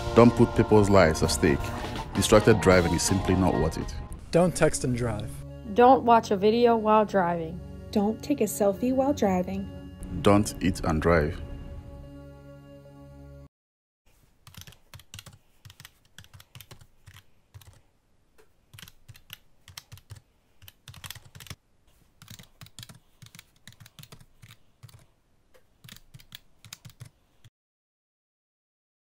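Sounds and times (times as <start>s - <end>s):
keyboard typing: 14.4s - 17.9s, 18.6s - 21.6s, 22.2s - 27.5s.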